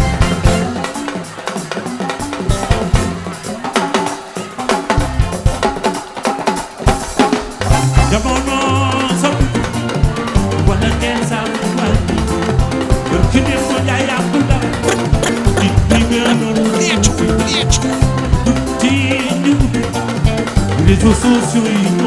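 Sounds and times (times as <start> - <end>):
heavy bass: 0.0 - 1.0, 7.7 - 21.4
dance music with drums: 0.0 - 22.0.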